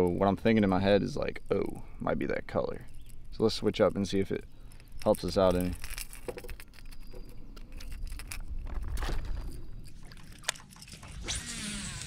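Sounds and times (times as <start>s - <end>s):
fishing line clicks and rustles: 2.5s - 11.2s
rod and reel being handled: 2.8s - 10.9s.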